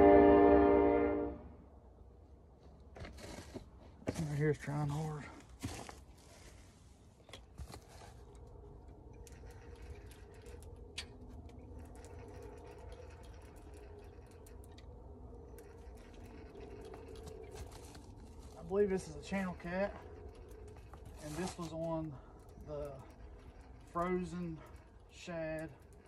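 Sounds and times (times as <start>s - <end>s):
low steady hum: 0.0s - 26.0s
small clicks: 8.2s - 18.2s.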